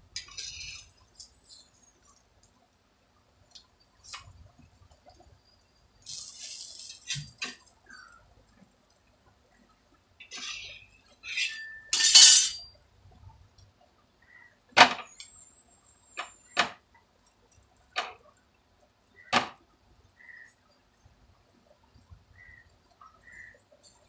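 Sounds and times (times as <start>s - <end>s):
scraping clatter of plates: 10.3s - 12.6s.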